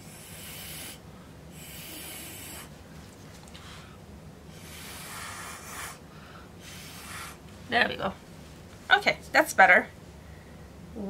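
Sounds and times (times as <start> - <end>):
soft breathy hissing: 0.0 - 2.8, 3.6 - 7.4.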